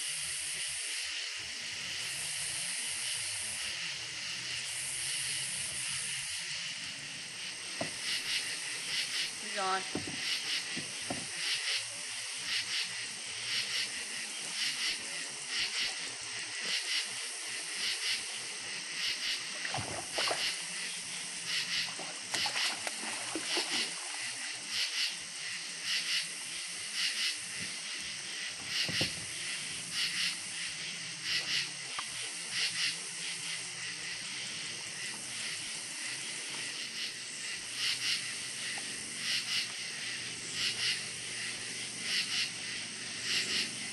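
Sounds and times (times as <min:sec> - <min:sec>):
insects chirping: 0:00.0 - 0:43.9
steady high hiss: 0:00.0 - 0:43.9
soft knocks in kayak: 0:07.7 - 0:08.1, 0:09.9 - 0:11.4, 0:28.6 - 0:29.3.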